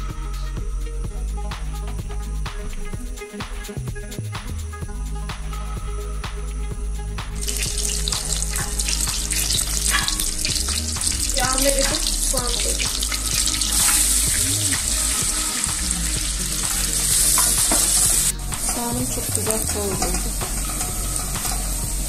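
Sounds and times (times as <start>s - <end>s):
wooden spoon stirring: 7.4s - 21.6s
butter sizzling in a pot: 7.4s - 22.0s.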